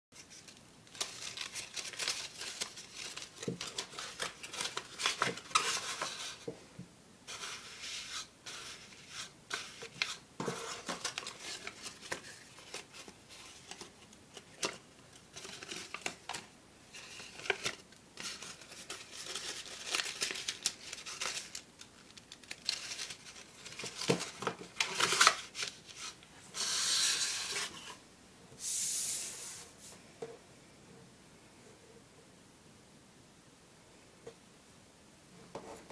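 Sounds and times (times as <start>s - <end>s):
paper rustling and crackling: 0.2s - 6.6s, 7.3s - 28.0s.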